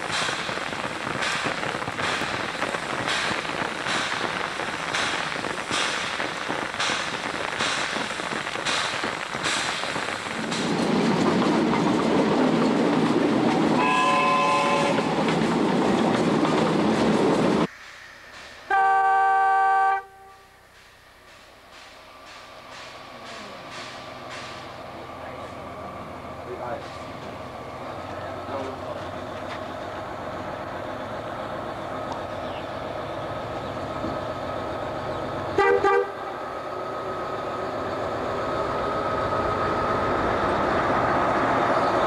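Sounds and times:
steam rushing: 0:00.0 - 0:35.0
steam locomotive chuffing: 0:00.0 - 0:42.0
steam whistle: 0:13.8 - 0:15.1, 0:18.7 - 0:20.6
railway horn: 0:13.8 - 0:15.2, 0:18.7 - 0:20.6, 0:35.6 - 0:36.3.

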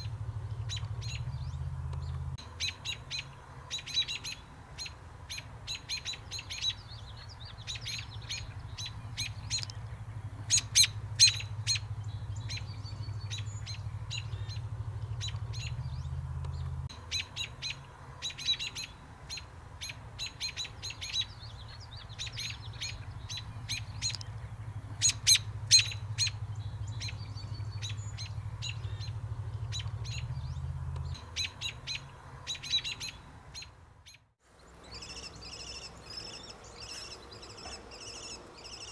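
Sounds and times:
steady low hum: 0:00.0 - 0:05.7, 0:06.9 - 0:18.2
robins alarm calls: 0:00.0 - 0:38.9.

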